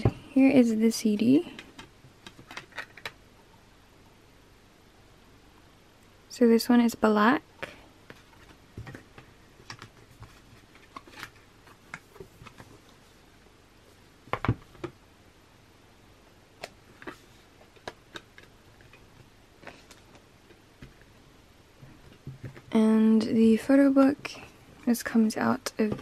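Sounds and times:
cd packaging being handled: 8.1 - 13.0.

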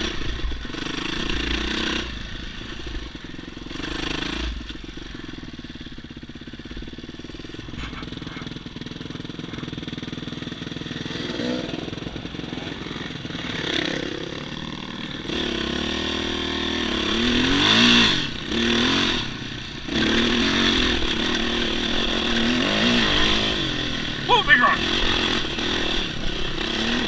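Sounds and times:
dirt bike engine revving: 7.2 - 27.0.

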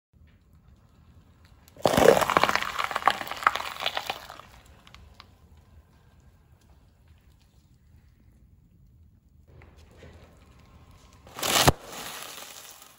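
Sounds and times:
pepper crushed under tyre: 1.7 - 5.3, 11.2 - 12.9.

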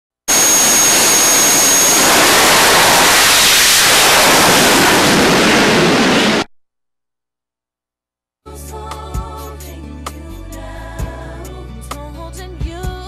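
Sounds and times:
jet engine at full power: 0.3 - 6.5.

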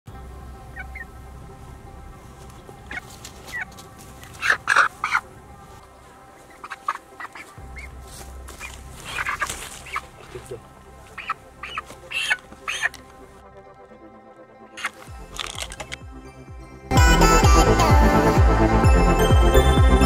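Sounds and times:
chicken squawking and clucking: 2.8 - 5.5, 6.3 - 8.0, 8.6 - 10.3, 11.1 - 13.1, 14.8 - 15.0.

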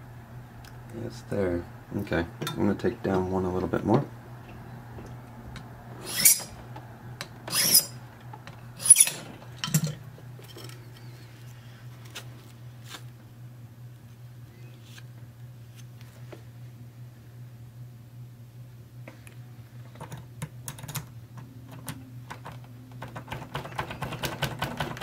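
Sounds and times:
steady low hum: 0.0 - 23.8
file rasping on brass key: 6.0 - 6.6, 7.5 - 8.0, 8.8 - 9.2.

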